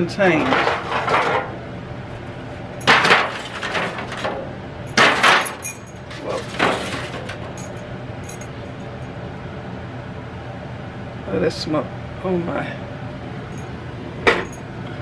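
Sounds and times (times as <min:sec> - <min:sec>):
foil pans crinkling and clattering: 0:00.3 - 0:01.5, 0:02.9 - 0:04.4, 0:05.0 - 0:07.6.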